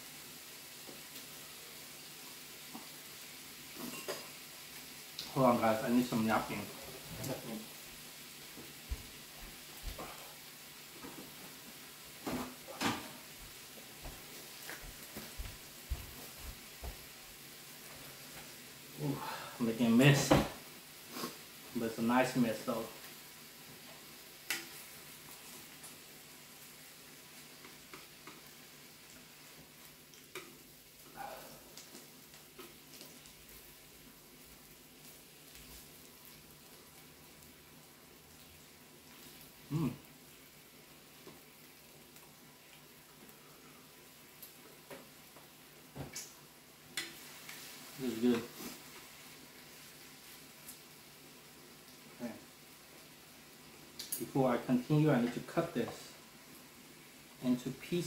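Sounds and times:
faint steady hiss: 0.0s - 58.0s
food sizzling on a grill: 0.0s - 58.0s.

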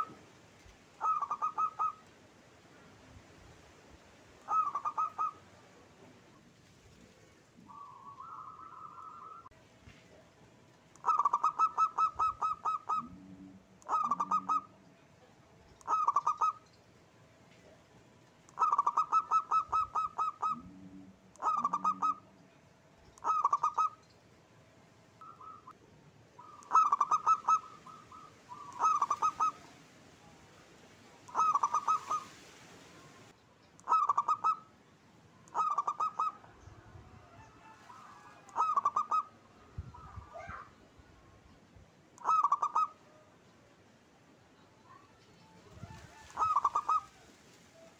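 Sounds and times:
dove staccato cooing: 0.0s - 0.2s, 1.0s - 2.0s, 4.4s - 5.5s, 11.0s - 14.8s, 15.8s - 16.6s, 18.5s - 22.3s, 23.2s - 24.0s, 26.4s - 29.7s, 31.3s - 32.3s, 33.8s - 34.7s, 35.5s - 36.6s, 37.6s - 39.3s, 42.2s - 43.0s, 45.7s - 47.9s.

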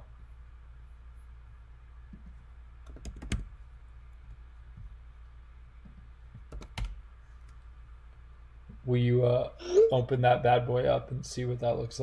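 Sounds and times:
steady low hum: 0.0s - 12.0s
computer keys clicking: 6.5s - 7.0s.

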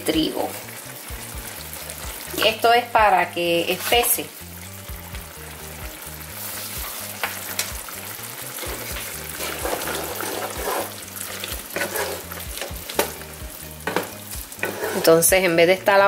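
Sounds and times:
chicken sizzling in a skillet: 0.0s - 16.0s
wooden spatula scraping a pan: 3.6s - 4.2s, 6.4s - 7.2s, 8.6s - 13.1s, 13.8s - 15.4s.

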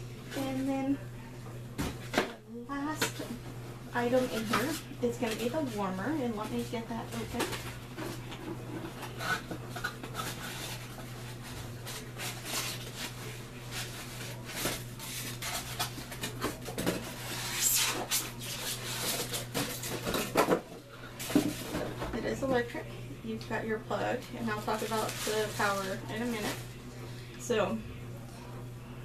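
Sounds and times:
cardboard and plastic rustling: 4.0s - 22.6s, 24.2s - 26.8s.

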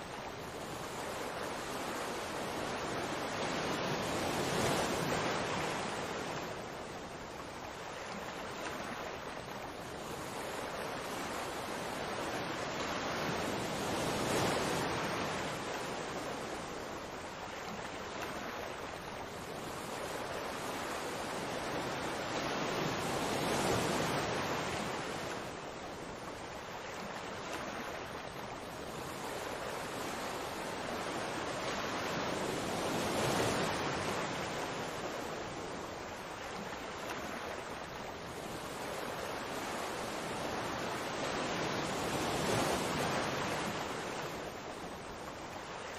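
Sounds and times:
rushing surf-like water: 0.0s - 45.9s.

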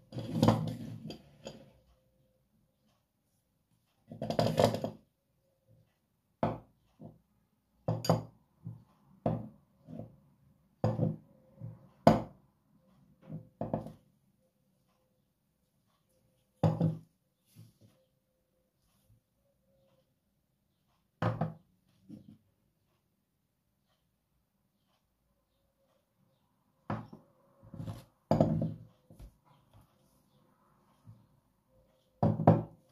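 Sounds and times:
dishes knocking and clinking: 4.1s - 5.0s, 7.9s - 9.6s, 10.8s - 11.2s, 13.3s - 14.0s, 16.6s - 17.1s, 21.2s - 21.6s, 27.8s - 28.9s, 32.2s - 32.8s.

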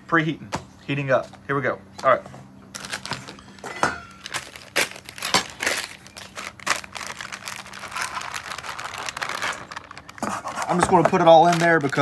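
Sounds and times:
plastic bag crinkling: 2.7s - 12.0s
potatoes shaken into a bowl: 10.5s - 12.0s.

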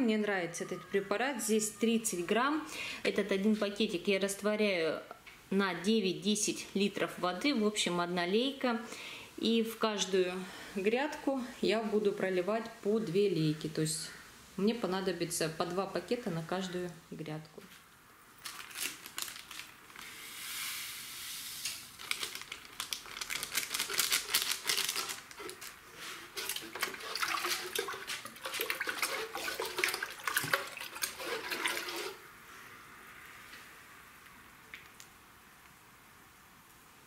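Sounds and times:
water splashing into watering can: 26.3s - 32.2s.

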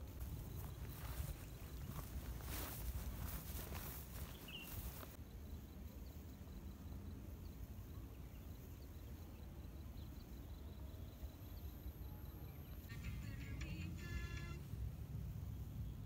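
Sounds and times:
footsteps through tall grass: 0.0s - 5.2s.

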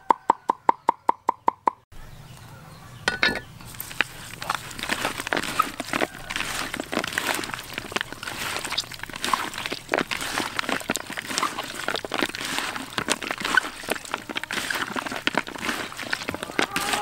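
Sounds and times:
small wet clicks: 3.6s - 17.0s
wet squelching and slapping: 3.7s - 17.0s.

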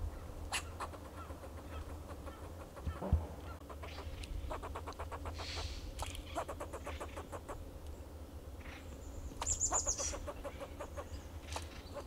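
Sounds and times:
squirrel clucking alarm barks: 0.5s - 5.7s, 6.3s - 7.6s, 9.4s - 11.2s.

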